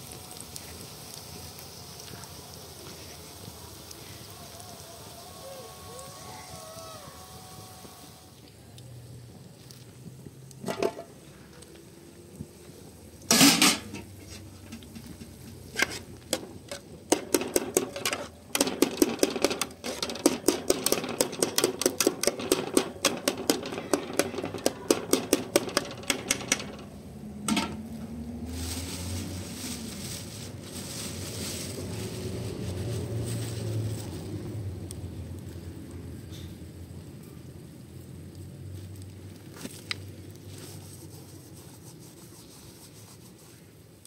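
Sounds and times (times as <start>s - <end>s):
steady hiss: 0.0s - 44.0s
loud metal clank: 13.3s - 14.1s, 17.1s - 27.8s.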